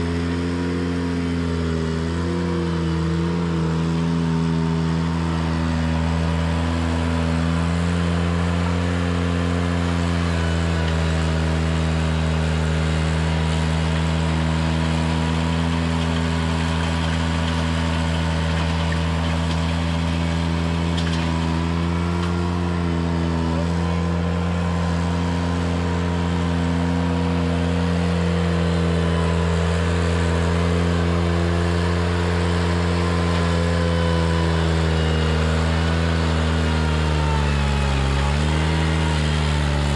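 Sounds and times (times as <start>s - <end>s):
tractor engine running steadily: 0.0s - 39.9s.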